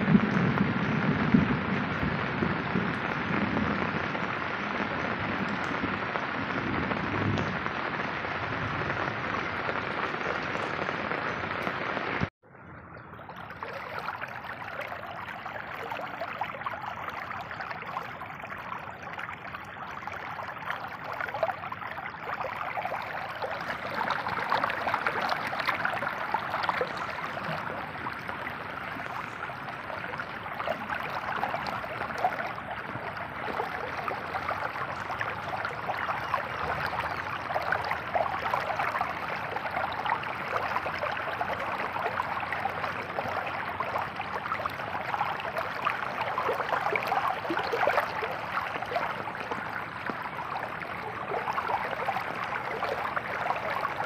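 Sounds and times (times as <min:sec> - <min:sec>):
rain falling on floodwater: 0:00.0 - 0:54.0.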